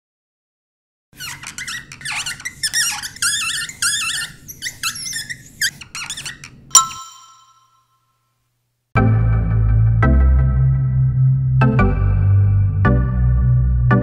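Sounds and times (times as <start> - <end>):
marker squeaking on whiteboard: 1.2 - 7.5.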